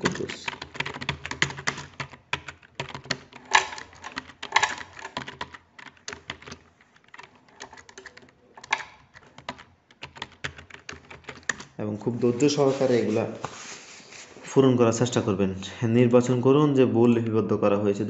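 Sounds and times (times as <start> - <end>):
keyboard typing clicks: 0.0 - 11.8.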